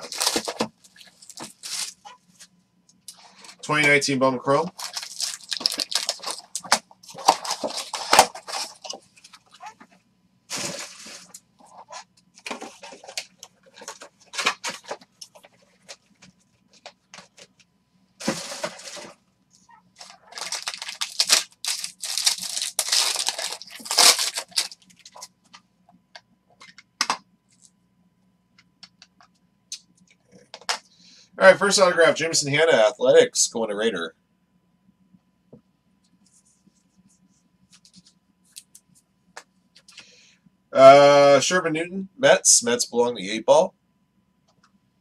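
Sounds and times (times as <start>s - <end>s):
foil packs tearing and crinkling: 0.0s - 2.1s, 4.6s - 9.0s, 10.5s - 11.4s, 18.2s - 19.1s, 20.0s - 25.3s.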